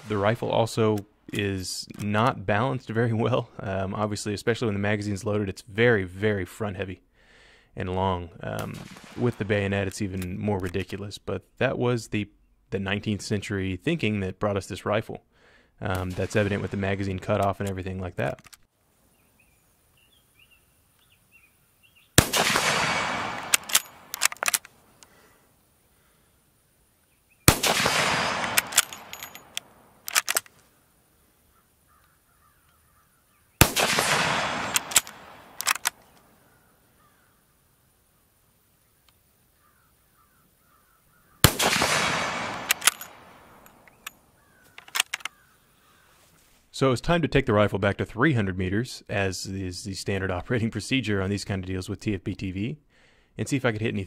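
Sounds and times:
rifle shots with echo: 8.6 - 9.7, 22.2 - 24.7, 27.5 - 30.4, 33.6 - 36.0, 41.4 - 44.1
rifle bolt clacking: 17.2 - 18.7, 22.2 - 25.1, 27.5 - 30.6, 33.6 - 36.3, 41.4 - 45.4.

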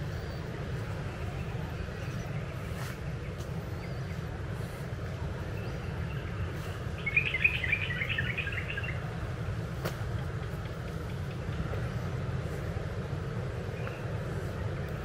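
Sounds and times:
low outdoor rumble: 0.0 - 15.0
small bird twittering: 5.6 - 9.0.

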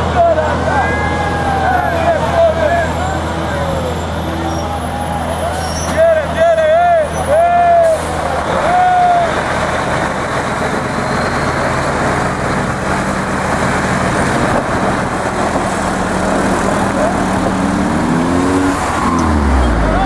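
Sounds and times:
road noise: 0.0 - 20.0
truck diesel engine driving past: 0.0 - 20.0
short high squeal: 3.7 - 6.0.

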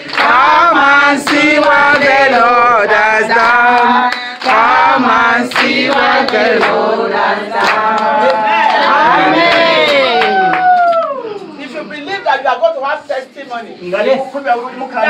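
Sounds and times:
woman singing a worship song: 0.0 - 8.4
voices singing along: 0.0 - 10.2.

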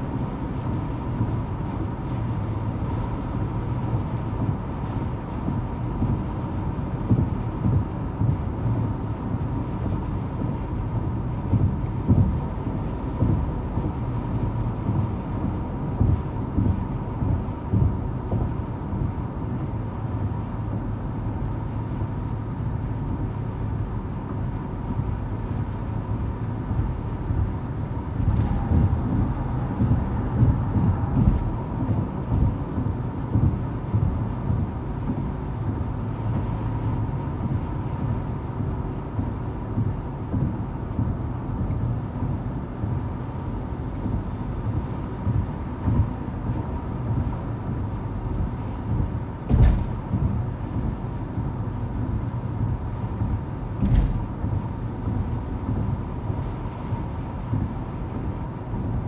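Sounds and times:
tyre and engine rumble: 0.0 - 59.0.

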